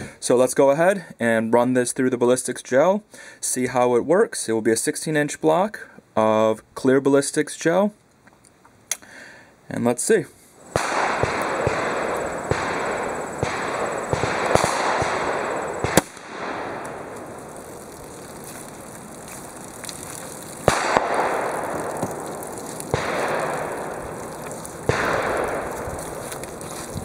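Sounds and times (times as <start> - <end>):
outdoor background noise: 0.0 - 27.0
faint distant gunshots: 10.6 - 27.0
revolver gunshot: 10.7 - 17.5, 20.6 - 26.5.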